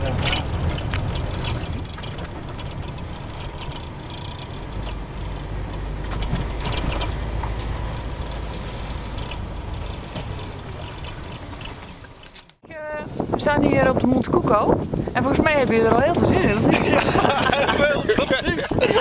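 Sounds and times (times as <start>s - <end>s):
light clicks and rattles: 0.0s - 12.6s
car engine and road rumble: 0.0s - 19.0s.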